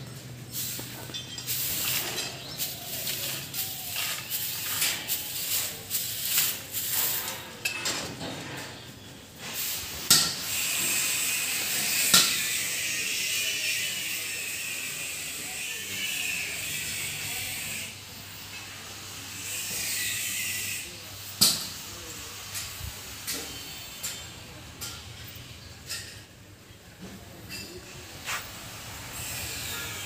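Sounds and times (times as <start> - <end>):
footsteps on dirt floor: 28.2 - 28.5.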